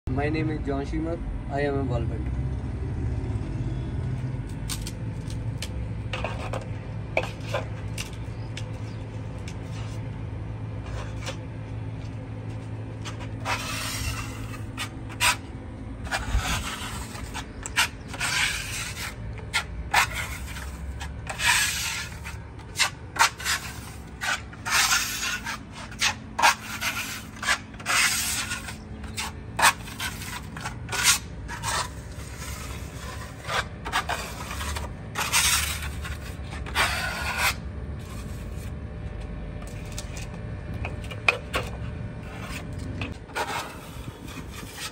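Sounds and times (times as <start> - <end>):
putty knife scraping plaster wall: 6.1 - 8.2, 13.0 - 38.7, 40.9 - 44.9.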